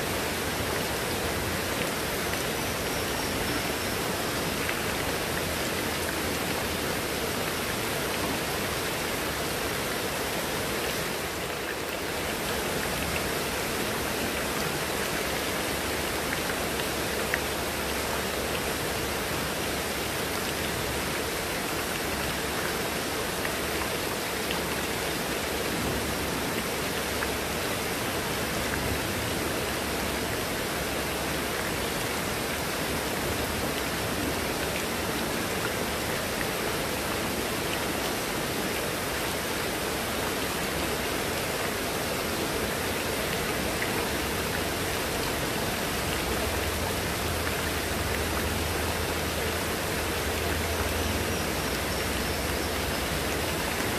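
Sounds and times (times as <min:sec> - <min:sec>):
heavy rain on leaves and paving: 0:00.0 - 0:53.9.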